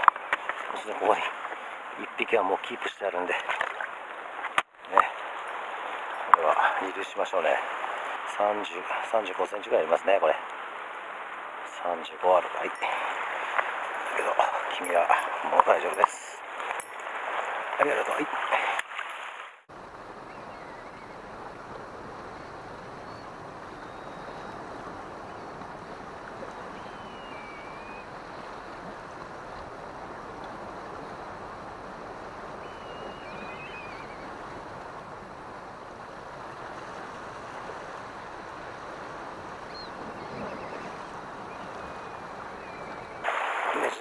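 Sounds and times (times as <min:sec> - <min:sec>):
surf against rocky shore: 0:00.0 - 0:44.0
high gliding bird calls: 0:20.2 - 0:21.3, 0:26.6 - 0:28.5, 0:32.6 - 0:34.4, 0:39.6 - 0:43.3.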